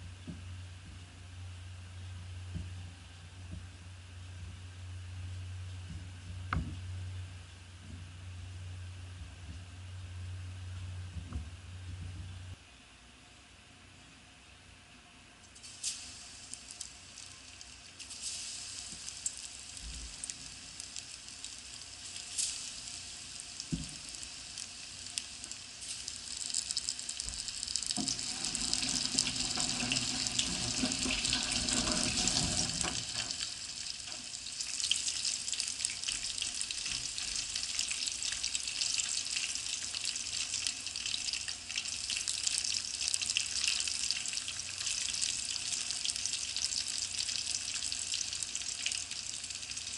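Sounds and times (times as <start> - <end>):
deep-frying crackling sizzle: 15.4 - 49.9.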